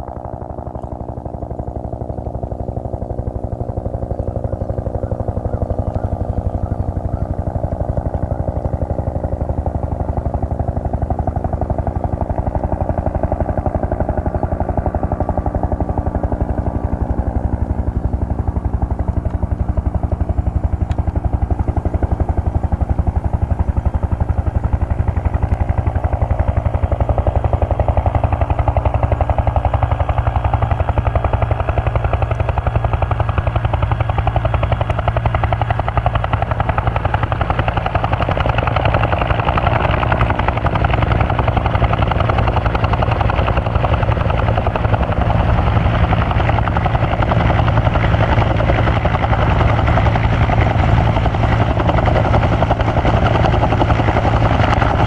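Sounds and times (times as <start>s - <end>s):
helicopter rotors chopping: 0.0s - 55.0s.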